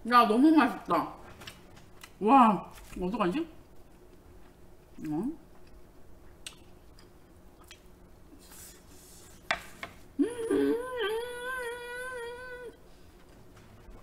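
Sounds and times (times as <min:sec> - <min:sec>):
woman humming with mouth full: 0:10.2 - 0:12.8.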